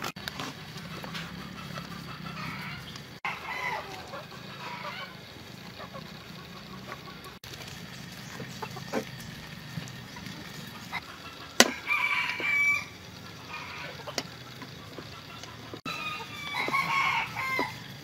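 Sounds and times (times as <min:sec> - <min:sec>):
rooster crowing: 0:02.4 - 0:05.2, 0:11.6 - 0:14.1, 0:15.9 - 0:18.0.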